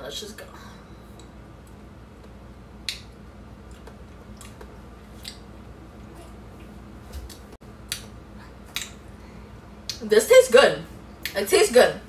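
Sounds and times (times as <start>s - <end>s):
faint room hum: 0.0s - 12.0s
mouth smacks: 3.7s - 5.5s, 8.7s - 9.0s.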